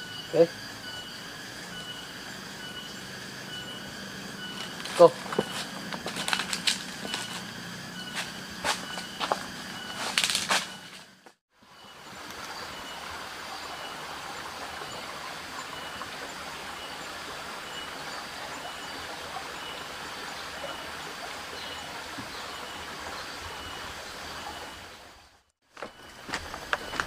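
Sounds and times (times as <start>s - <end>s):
faint high chirp: 0.0s - 6.4s.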